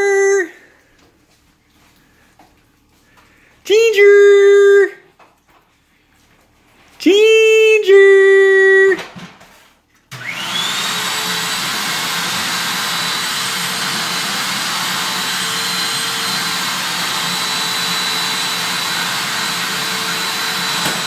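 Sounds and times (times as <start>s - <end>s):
vacuum cleaner motor running: 10.1s - 21.0s.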